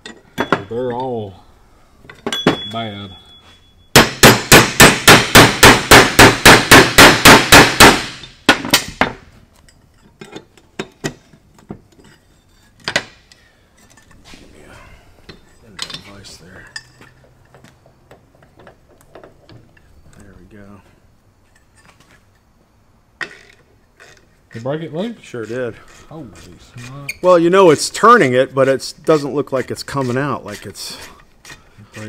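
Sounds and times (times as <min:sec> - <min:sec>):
light metal knocks and clicks: 0:15.2 - 0:19.9.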